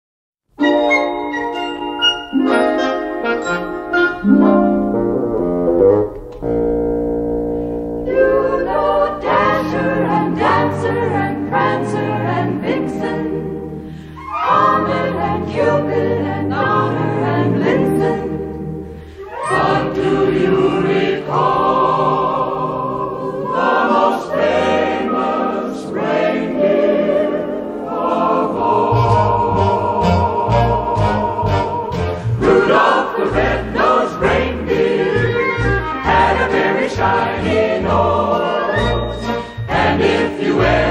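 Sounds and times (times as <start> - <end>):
choir singing with instruments: 0.6 - 40.9.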